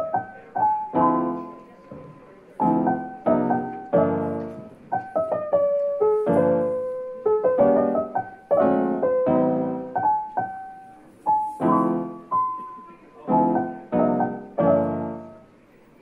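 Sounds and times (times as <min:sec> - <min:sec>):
gentle piano melody: 0:00.0 - 0:15.8.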